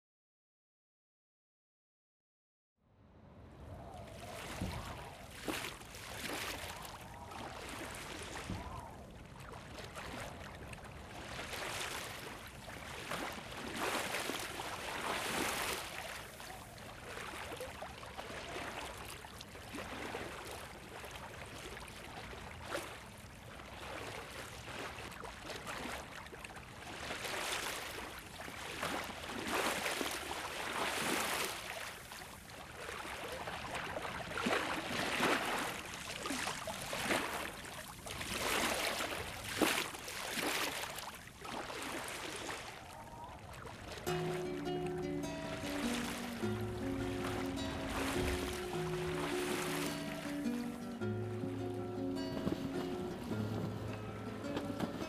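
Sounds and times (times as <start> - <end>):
sea water washing: 3.8 - 55.0.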